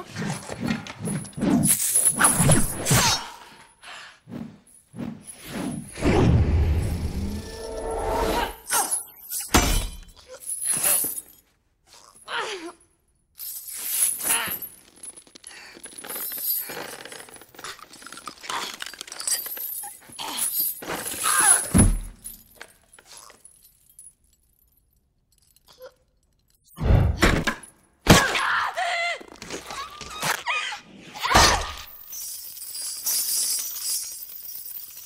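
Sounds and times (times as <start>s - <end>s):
chain rattling: 0.1s - 2.9s, 8.6s - 12.3s, 13.4s - 26.8s, 31.8s - 35.0s.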